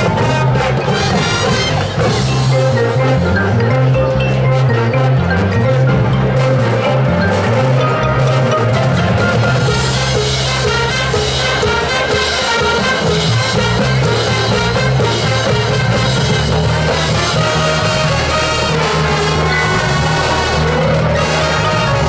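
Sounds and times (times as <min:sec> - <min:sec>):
marching band playing brass: 0:00.0 - 0:22.0.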